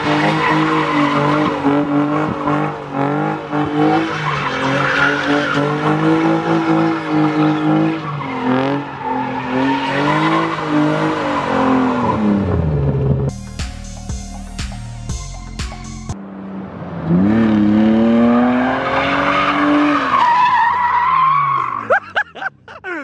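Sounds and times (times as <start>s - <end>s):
tyres squealing on asphalt: 0.0s - 12.4s, 18.4s - 22.0s
car engine revving: 0.0s - 13.4s, 15.8s - 21.5s.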